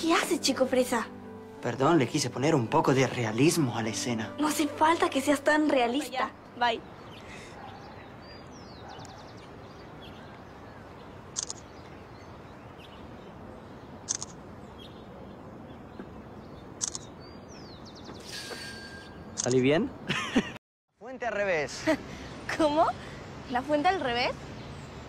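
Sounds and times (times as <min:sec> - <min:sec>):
outdoor background hiss: 0:00.0 - 0:25.0
phone camera shutter clicks: 0:11.3 - 0:11.6, 0:14.1 - 0:14.4, 0:16.8 - 0:17.1.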